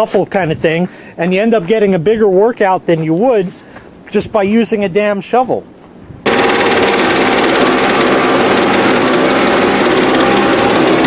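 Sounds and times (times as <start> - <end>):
snowblower engine running: 6.3 - 11.0.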